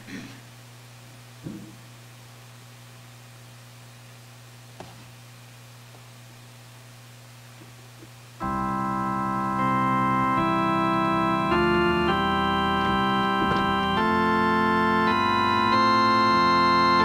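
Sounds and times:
electronic organ chords: 8.4s - 17.0s.

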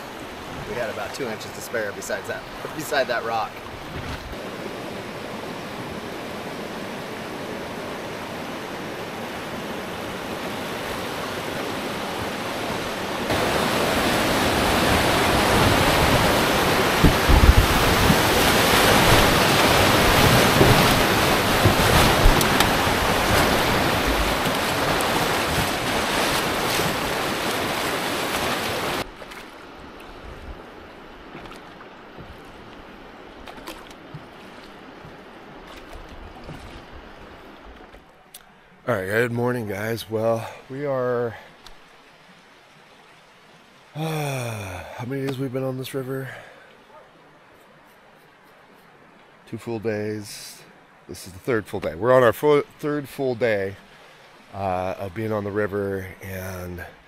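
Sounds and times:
whitewater rushing: 0.0s - 37.8s, 42.2s - 46.6s
calm river water flowing: 0.0s - 57.0s
low thumps: 15.6s - 26.0s.

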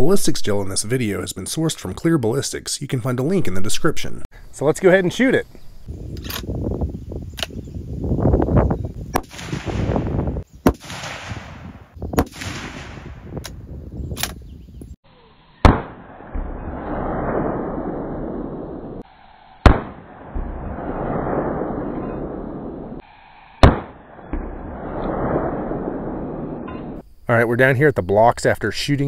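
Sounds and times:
wind on microphone: 5.5s - 15.0s
rifle shots: 9.2s - 13.4s, 15.6s - 19.0s, 19.6s - 23.0s, 23.6s - 27.0s.

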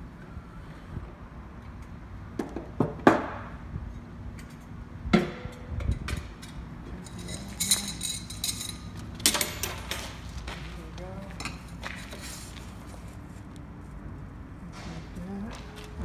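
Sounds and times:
metal clinks and knocks: 5.5s - 10.2s.

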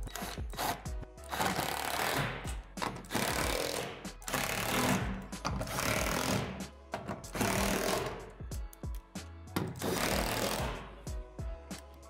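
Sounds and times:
power driver driving screws: 0.0s - 8.3s, 9.6s - 10.9s.

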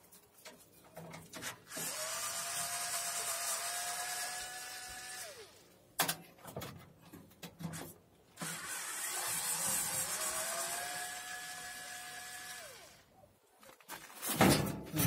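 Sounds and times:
cordless screwdriver motor whine: 1.7s - 5.6s, 8.4s - 13.0s.

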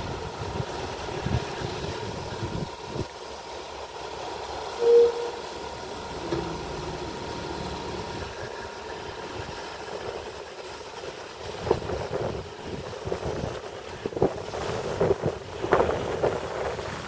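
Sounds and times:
diesel engines running: 0.0s - 17.0s
short loud beep: 4.8s - 5.4s.

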